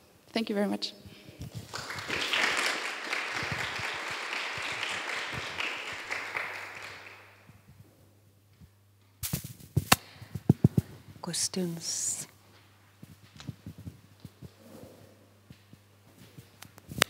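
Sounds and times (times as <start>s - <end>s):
audience applauding: 1.5s - 7.5s.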